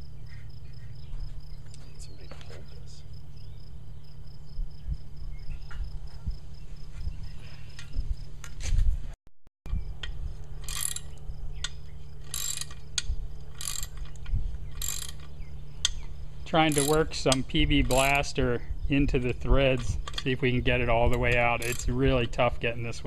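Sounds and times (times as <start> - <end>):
steady low hum: 0.0 - 23.0
ratchet wrench clicking: 10.0 - 16.0, 16.7 - 18.3, 21.1 - 22.0.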